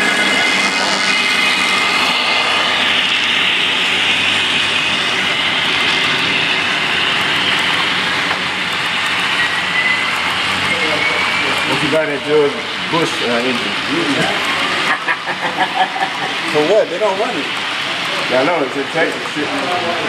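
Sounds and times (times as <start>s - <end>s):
thin whining tones: 0.0s - 14.7s.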